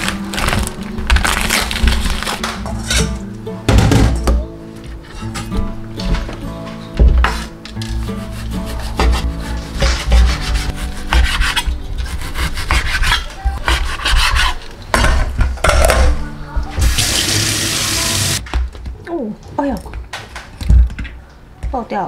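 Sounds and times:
knife scraping cutting board: 7.3s - 14.7s
knife sawing through meat: 10.2s - 14.7s.

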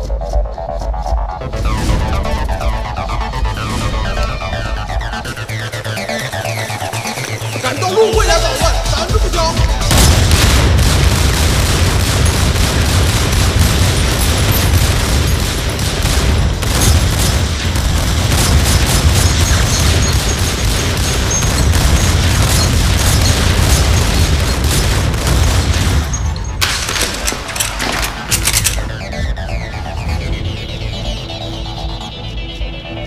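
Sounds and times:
heavy booms: 9.6s - 27.0s
handgun gunfire: 9.9s - 28.9s.

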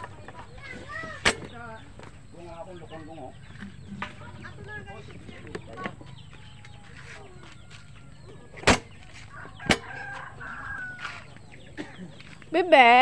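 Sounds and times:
chickens clucking: 0.0s - 12.5s
sharp knocks: 8.6s - 8.9s, 9.6s - 10.0s
rooster crowing: 9.1s - 11.4s.

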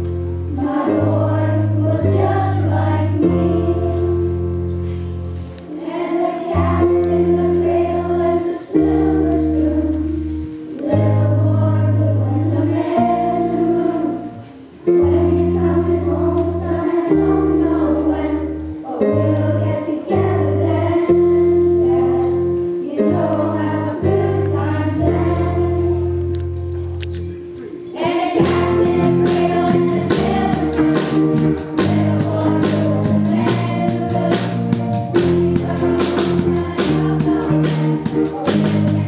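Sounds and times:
children's choir singing: 0.0s - 4.4s, 5.6s - 26.5s, 27.9s - 39.0s
keyboard: 0.0s - 39.0s
drum kit beat: 28.0s - 39.0s.

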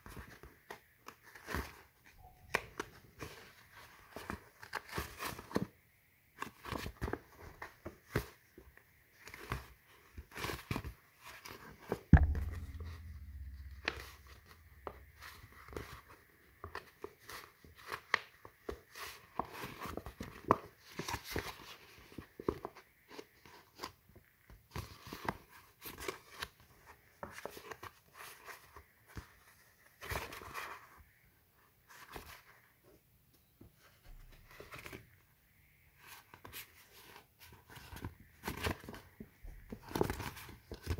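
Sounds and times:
loud thump: 12.2s - 15.4s
low hum: 12.2s - 15.8s.

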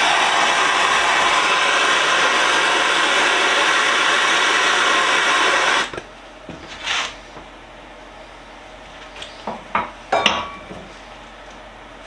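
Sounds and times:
gas torch hissing: 0.0s - 6.0s.

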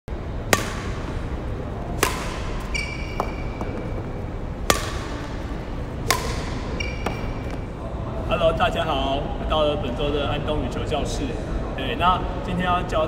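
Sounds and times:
badminton racket hitting shuttlecock: 0.4s - 3.8s, 4.6s - 7.6s
shoe squeaking on wooden floor: 2.6s - 4.1s, 6.7s - 7.6s.

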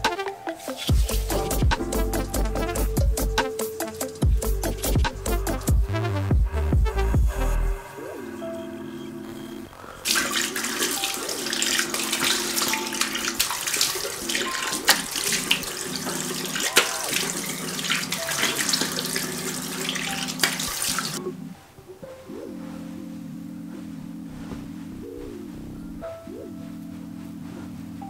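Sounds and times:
water splashing: 10.0s - 21.2s.

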